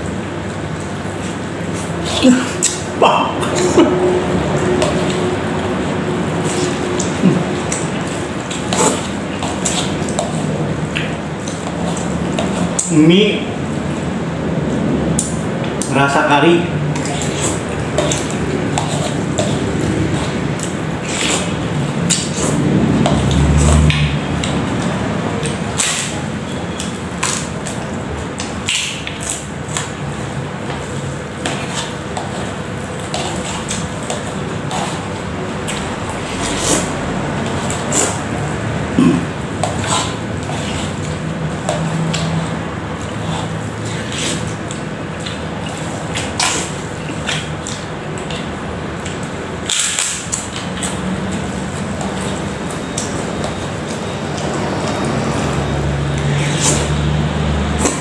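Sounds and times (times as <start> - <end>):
steady background hum: 0.0 - 58.0
open-mouth chewing: 1.1 - 13.0, 16.9 - 58.0
person slurping noodles: 1.7 - 10.6, 17.0 - 23.9, 32.4 - 41.1, 54.2 - 58.0.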